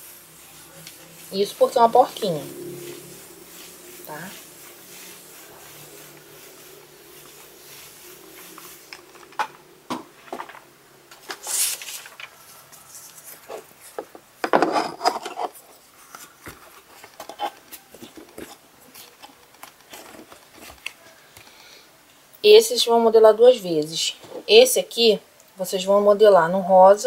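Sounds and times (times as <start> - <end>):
foam sheet rubbing: 0.0 - 10.2, 11.2 - 14.0
rustling: 0.0 - 21.5.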